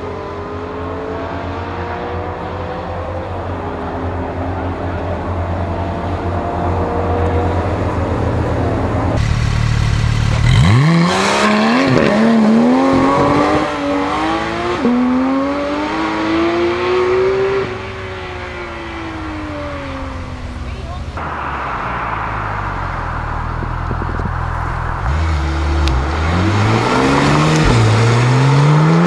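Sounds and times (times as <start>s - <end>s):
sports car engine revving: 5.6s - 21.2s, 22.7s - 29.0s.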